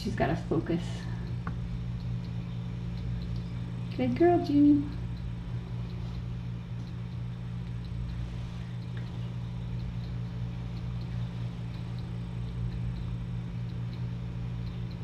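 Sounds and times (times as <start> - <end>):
low electrical hum: 0.0 - 15.0
kittens eating wet food: 4.8 - 15.0.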